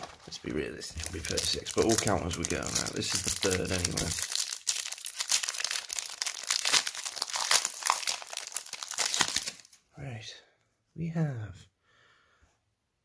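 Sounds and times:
foil wrapper crinkling: 0.0s - 9.8s.

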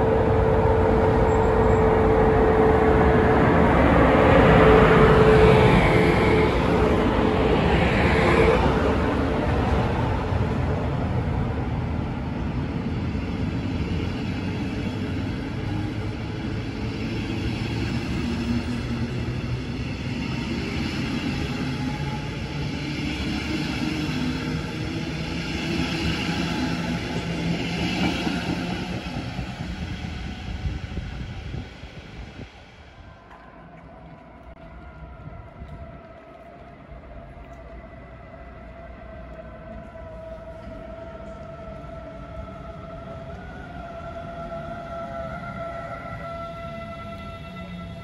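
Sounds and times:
train wheels rumbling on rails: 0.0s - 48.0s.

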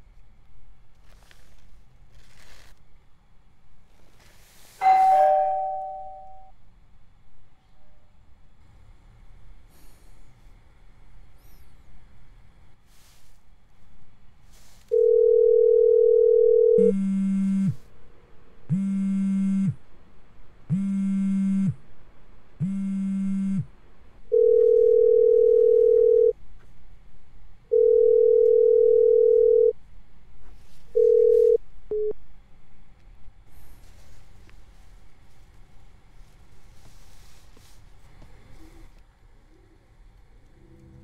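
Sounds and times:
phone ringback beeps: 4.8s - 6.5s, 14.9s - 17.8s, 24.3s - 26.3s, 27.7s - 29.7s, 31.0s - 32.2s
mobile phone vibrating: 14.9s - 17.9s, 18.7s - 19.8s, 20.7s - 21.8s, 22.6s - 23.7s, 24.3s - 26.4s, 27.7s - 29.8s, 30.9s - 32.2s.

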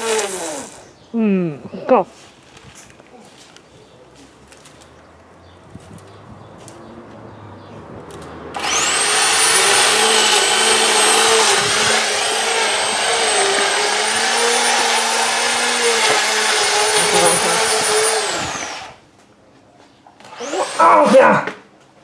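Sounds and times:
electric power tool motor whining: 8.6s - 19.0s, 20.2s - 20.9s.

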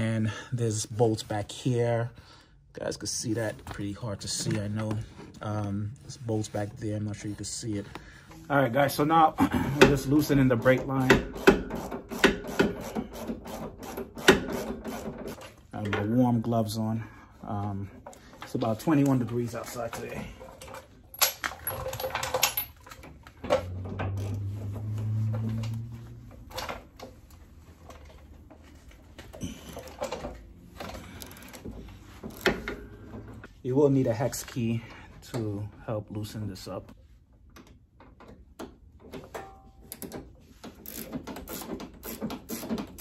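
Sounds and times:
ratchet wrench clicking: 40.8s - 43.0s.

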